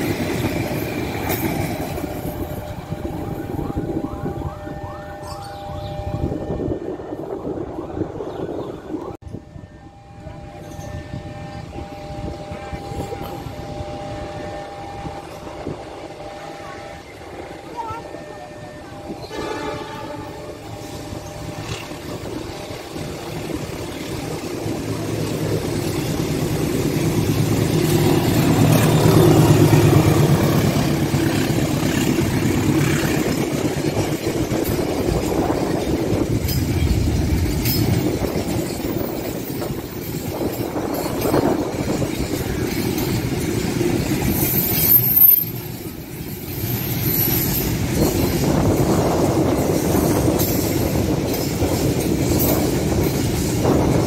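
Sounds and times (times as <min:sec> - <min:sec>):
diesel locomotive engine: 0:00.0 - 0:54.0
wagons rolling and clattering: 0:24.1 - 0:54.0
high wheel squeal: 0:43.8 - 0:45.8.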